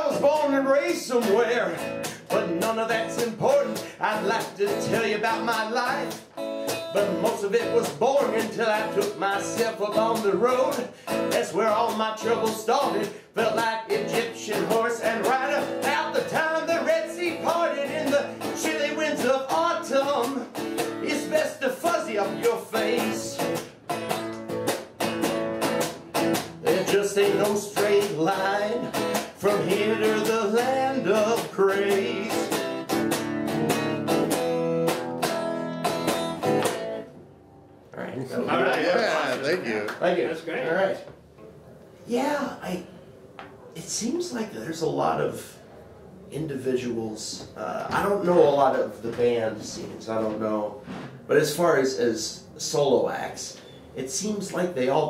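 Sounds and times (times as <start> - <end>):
man singing: 0.0 - 6.2, 6.8 - 23.6, 26.6 - 32.9
strummed electric guitar: 0.0 - 37.3.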